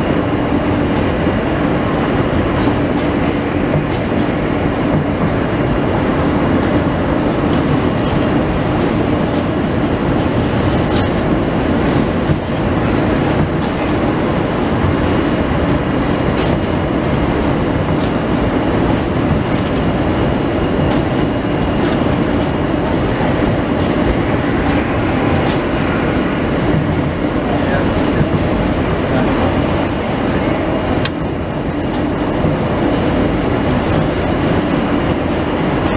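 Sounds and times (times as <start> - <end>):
train running on rails: 0.0 - 35.9.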